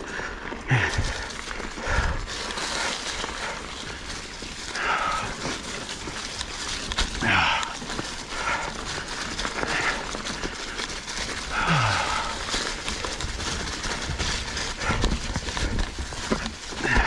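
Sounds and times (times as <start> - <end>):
mountain bike rattling over rocks: 0.0 - 17.0
rider breathing hard: 0.0 - 17.0
rider grunting: 0.4 - 4.0, 6.8 - 14.0.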